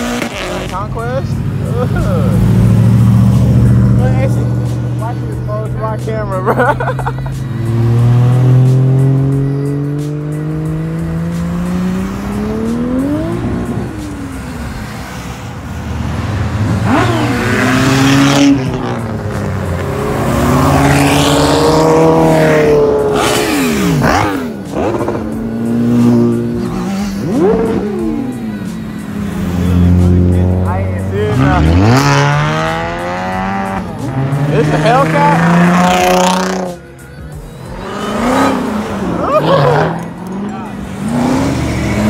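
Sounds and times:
car engines revving: 0.0s - 42.0s.

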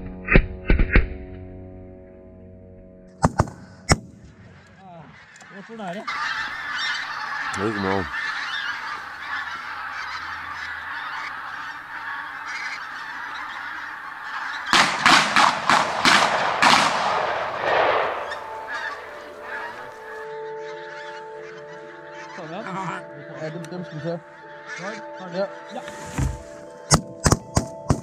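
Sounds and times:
flock of geese honking: 4.3s - 27.0s.

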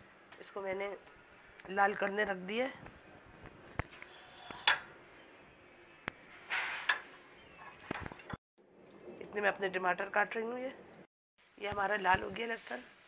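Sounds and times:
kitchen utensils clinking: 4.1s - 5.0s, 6.5s - 8.4s
garlic and chillies frying in oil: 8.9s - 13.0s.

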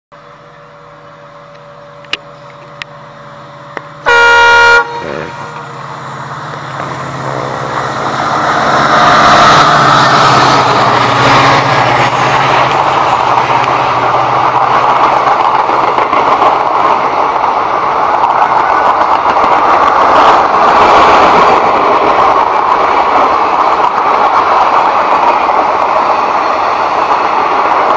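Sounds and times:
diesel locomotive engine droning: 0.1s - 27.9s
train coaches rumbling on rails: 0.2s - 27.9s
train horn blast: 4.0s - 5.8s.

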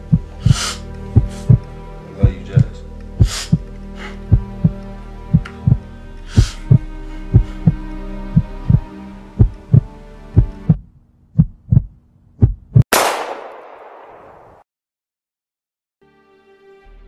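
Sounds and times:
heartbeat thumping: 0.0s - 3.7s, 4.3s - 10.8s, 11.4s - 12.9s
low steady drone: 0.0s - 10.8s
handgun shot: 12.9s - 14.6s.

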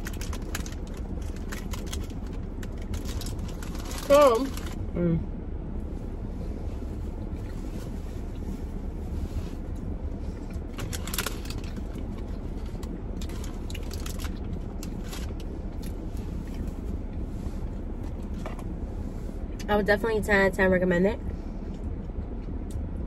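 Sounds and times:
food crunching: 0.0s - 4.8s, 10.5s - 16.7s
low rumble: 0.0s - 23.0s.

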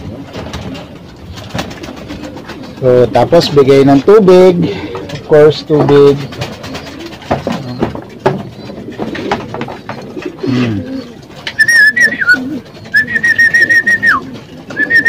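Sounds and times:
pigeons cooing: 0.0s - 15.0s
light knocks and clatter: 4.9s - 10.4s
man whistling trilling note: 11.6s - 14.2s, 14.8s - 15.0s.

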